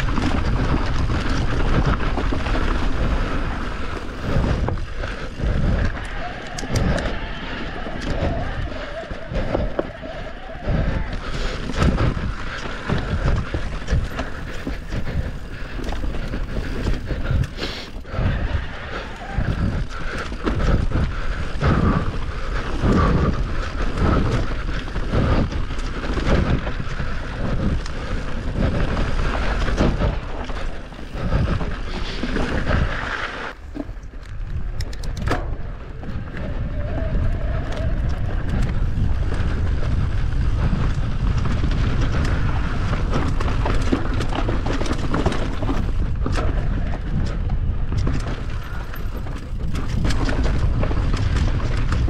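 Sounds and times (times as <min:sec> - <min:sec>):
bike tyres rumbling over rocks: 0:00.0 - 0:52.0
wind buffeting microphone: 0:00.0 - 0:52.0
bike knocks and rattles: 0:38.2 - 0:52.0.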